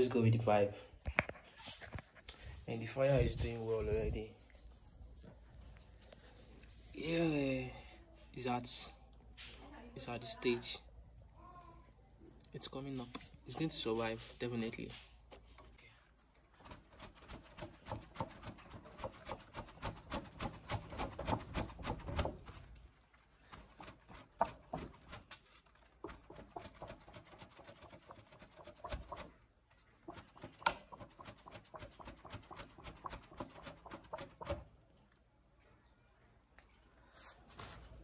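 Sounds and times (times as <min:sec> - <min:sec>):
hand fan flapping: 0:16.5 - 0:34.7.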